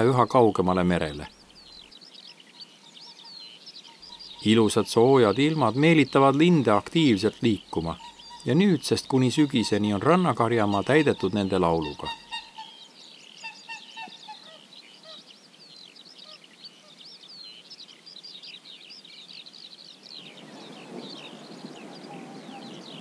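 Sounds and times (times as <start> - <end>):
songbirds chirping: 0.0 - 23.0
waterfowl honking: 7.8 - 12.8, 13.4 - 15.2.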